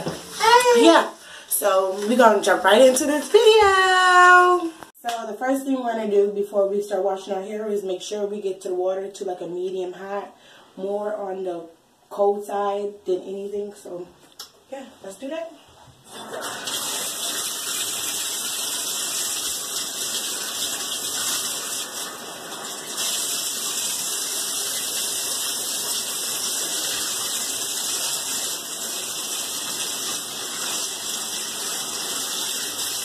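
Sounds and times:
water running from bathtub tap: 16.1s - 33.0s.

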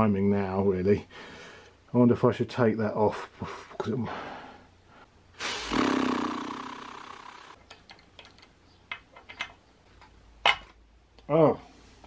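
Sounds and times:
whirring hiss: 5.4s - 7.6s.

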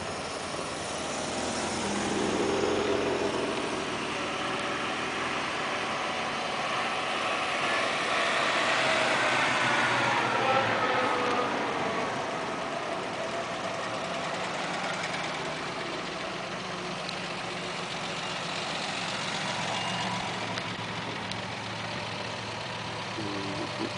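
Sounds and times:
vintage cars driving past: 0.0s - 23.9s.

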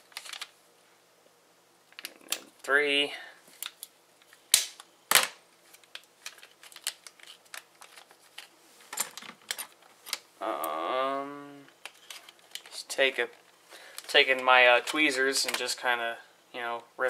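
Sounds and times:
plastic crinkling: 0.0s - 0.6s, 5.6s - 10.3s, 11.8s - 15.7s
man's wordless voice: 10.4s - 11.7s.

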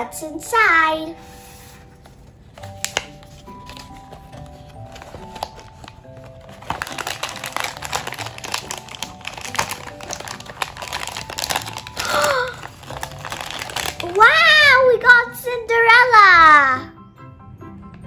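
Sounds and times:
soft background music: 0.0s - 18.0s
cardboard packaging crinkling: 1.3s - 14.4s
child exclaiming: 14.0s - 16.9s.

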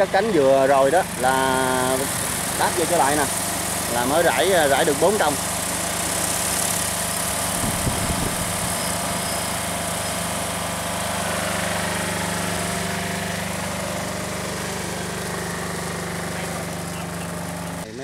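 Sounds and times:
motor humming with hiss: 0.0s - 17.9s.

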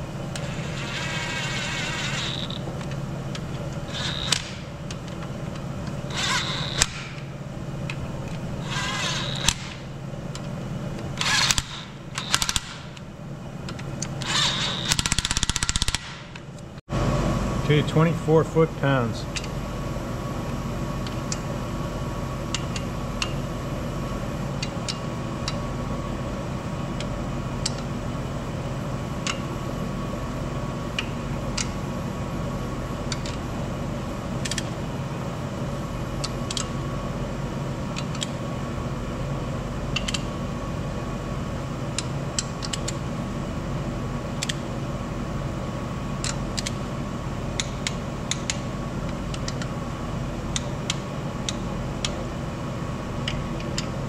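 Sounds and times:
steady mechanical hum: 0.0s - 54.0s
torque wrench ratcheting clicks: 3.9s - 4.6s, 11.2s - 13.0s, 13.7s - 16.2s.

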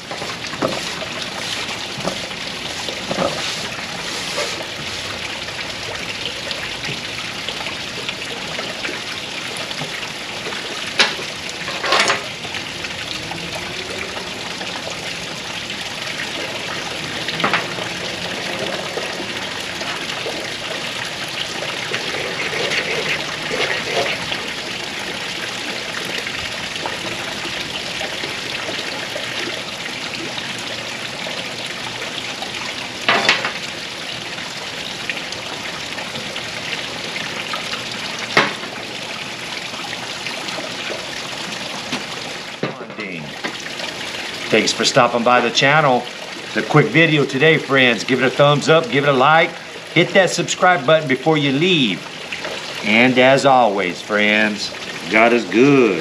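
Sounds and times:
ferro rod scraping on wood: 21.8s - 24.4s.

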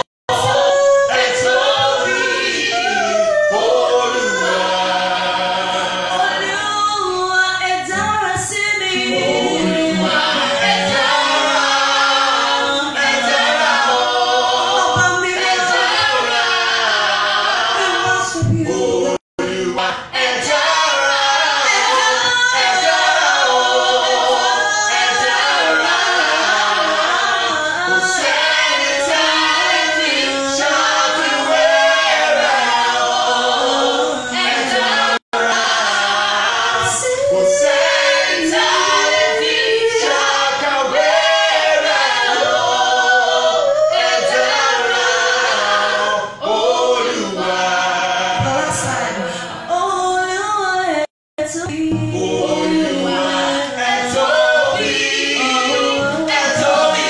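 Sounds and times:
woman singing gospel song: 48.4s - 57.0s.

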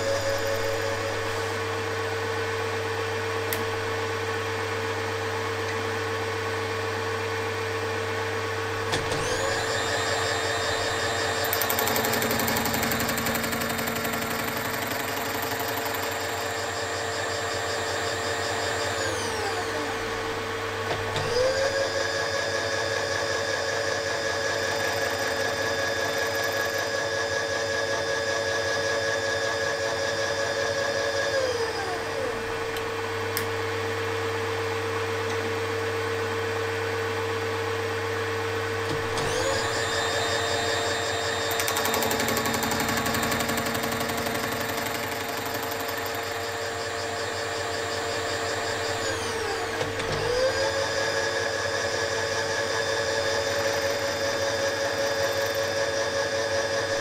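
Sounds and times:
power feed motor whining: 0.0s - 34.0s, 35.0s - 57.0s
milling machine cutting: 8.9s - 20.0s, 38.8s - 55.8s.

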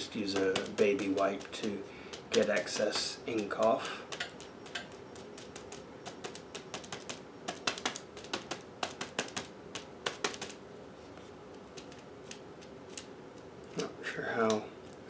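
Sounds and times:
ink pad tapping on stamp: 0.2s - 10.6s.

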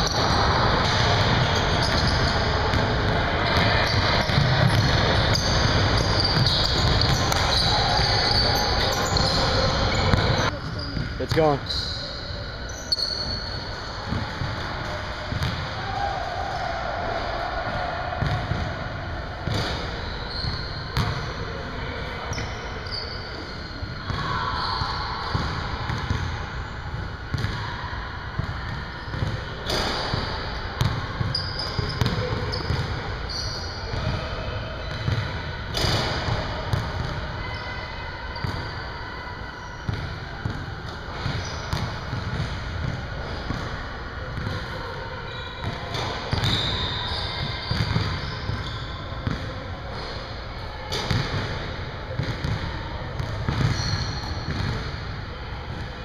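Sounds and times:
sneaker squeaks: 0.0s - 16.8s, 19.4s - 26.6s, 28.4s - 43.8s, 44.4s - 55.0s
basketballs bouncing on wooden floor: 15.3s - 15.6s, 53.2s - 54.8s.

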